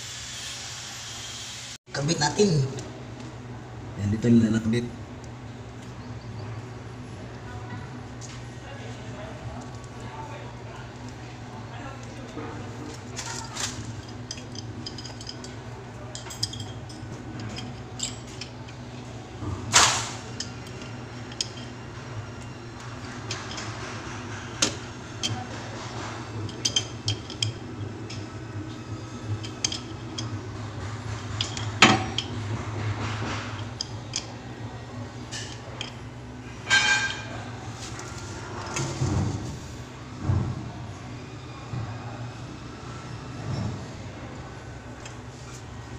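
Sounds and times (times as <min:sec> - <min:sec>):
steady low hum: 0:01.9 - 0:45.9
metal tool clinks and scrapes: 0:13.2 - 0:18.8, 0:25.2 - 0:28.3, 0:29.2 - 0:34.3, 0:36.6 - 0:38.0.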